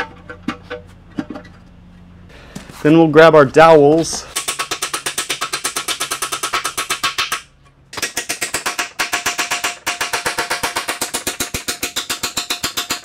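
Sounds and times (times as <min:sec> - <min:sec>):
hand ratchet clicking rapidly: 0:04.3 - 0:13.0.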